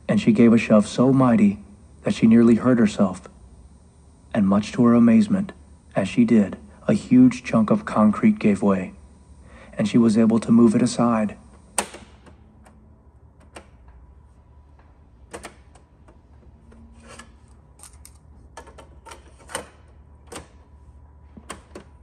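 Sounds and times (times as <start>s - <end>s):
cassette deck plastic clicks: 11.7s - 12.8s, 15.3s - 16.2s.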